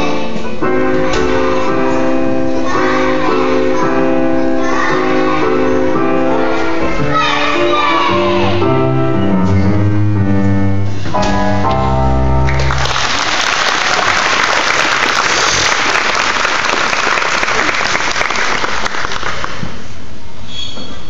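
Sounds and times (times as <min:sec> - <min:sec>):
song closing chords: 0:00.0 - 0:13.2
audience applause: 0:12.5 - 0:19.6.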